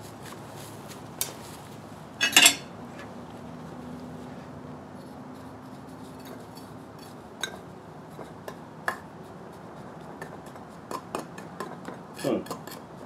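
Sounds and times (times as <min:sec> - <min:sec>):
metal spoon clinking in crucible: 0:02.2 - 0:02.7.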